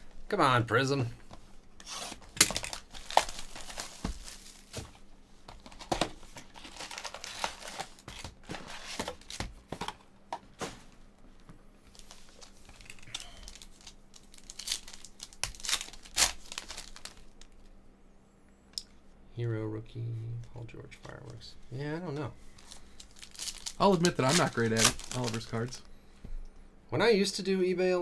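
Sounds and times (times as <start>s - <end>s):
plastic shrink-wrap crinkling and tearing: 1.8s - 4.8s, 6.5s - 9.4s, 11.9s - 17.6s, 22.6s - 25.9s
foil packs rustling and tearing: 1.8s - 5.0s, 5.6s - 9.5s, 11.9s - 17.5s, 22.5s - 25.8s.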